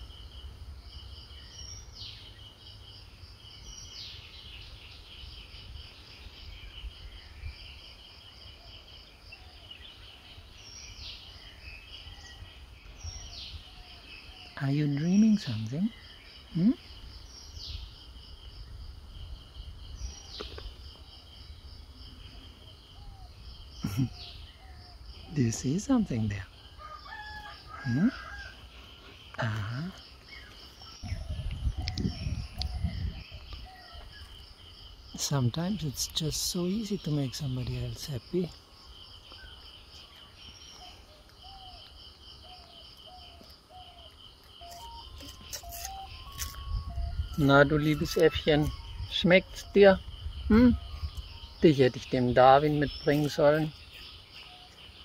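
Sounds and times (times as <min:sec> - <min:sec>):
insects trilling: 0:00.0 - 0:55.0
bird whistling: 0:44.6 - 0:49.1.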